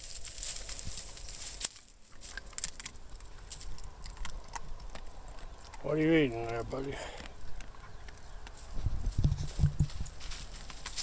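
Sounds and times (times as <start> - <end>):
dog rooting through dry leaves: 0.0 - 6.5.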